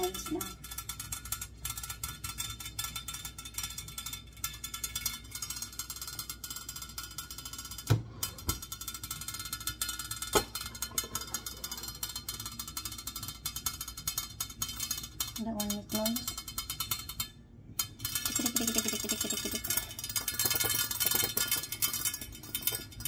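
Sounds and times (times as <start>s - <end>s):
pot lid valve ticking: 0.0s - 23.0s.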